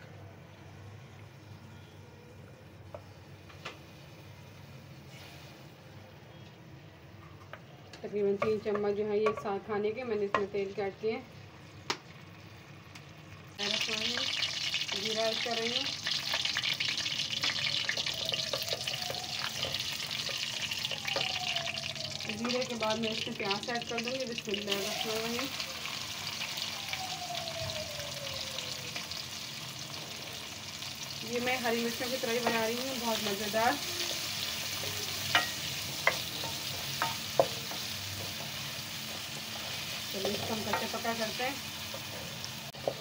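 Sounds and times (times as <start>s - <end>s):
seeds sizzling in hot oil: 2.9s - 5.9s, 11.6s - 43.0s
wooden spoon tapping metal pan: 8.4s - 9.5s, 35.3s - 38.3s, 40.2s - 41.2s.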